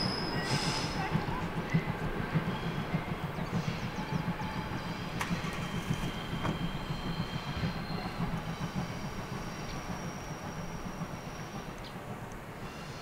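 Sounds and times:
train coaches rumbling on track: 0.0s - 13.0s
wheel squeals: 2.5s - 11.7s.

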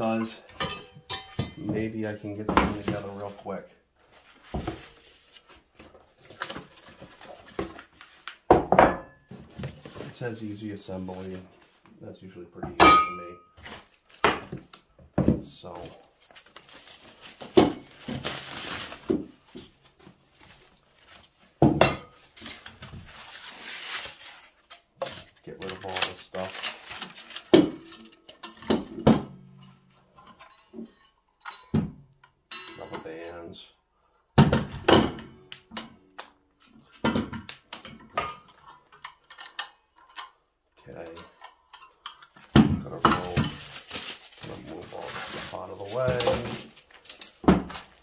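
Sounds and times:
packing paper and foam rustling: 4.0s - 8.5s, 15.7s - 21.6s, 22.2s - 28.2s, 42.9s - 48.0s.

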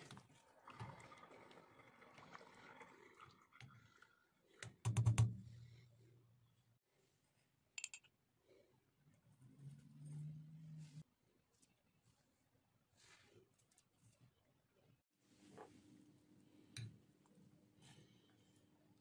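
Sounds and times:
ladle swishing soup: 0.0s - 4.6s.

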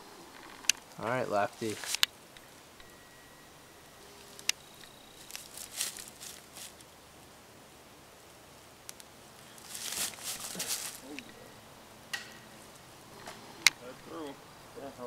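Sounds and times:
footsteps rustling in dry leaves: 1.4s - 2.0s, 5.1s - 6.9s, 9.4s - 11.4s.

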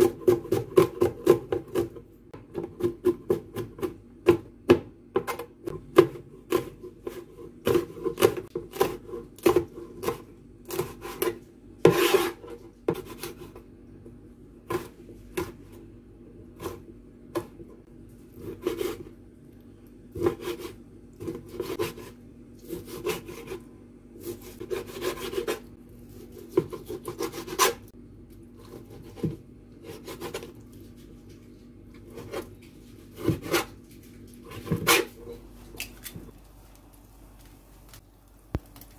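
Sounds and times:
knife chopping on cutting board: 0.0s - 13.5s, 20.2s - 23.6s, 26.3s - 27.8s, 33.2s - 33.8s.

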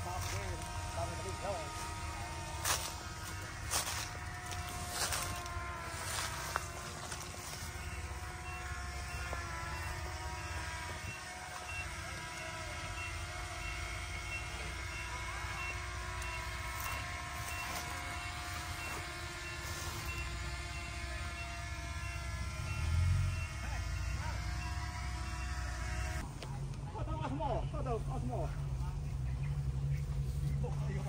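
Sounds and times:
reversing alarm beeping: 6.4s - 25.8s
bulldozer diesel engine under load: 18.2s - 26.2s.

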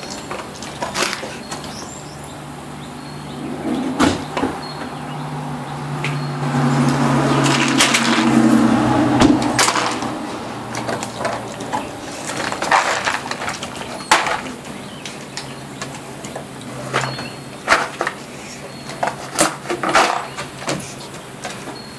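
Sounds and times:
treats rattling: 9.5s - 21.9s.

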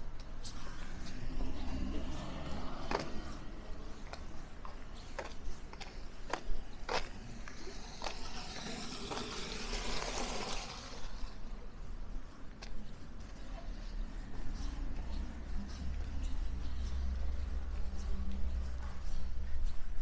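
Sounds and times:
footsteps on street: 0.0s - 20.0s
car passing with tyre hiss: 0.4s - 5.1s, 7.2s - 11.5s.

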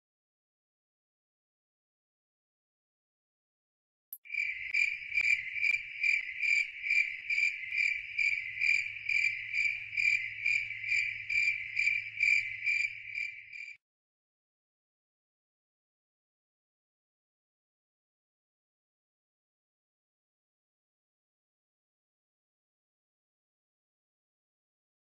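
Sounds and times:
cricket chirping: 4.2s - 13.8s.

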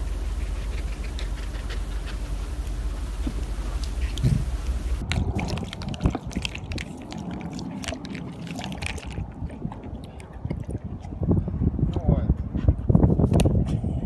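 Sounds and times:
dog lapping water: 3.8s - 11.6s.

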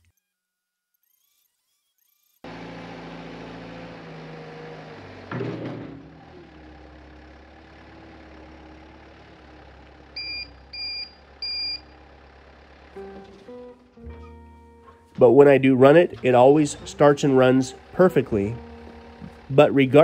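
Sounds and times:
diesel engine running: 2.5s - 20.0s
backup alarm beeps: 10.2s - 12.0s.

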